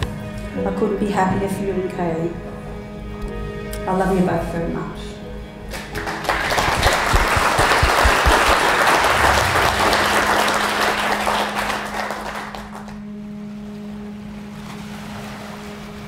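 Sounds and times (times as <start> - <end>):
crowd applauding: 5.7 - 13.1.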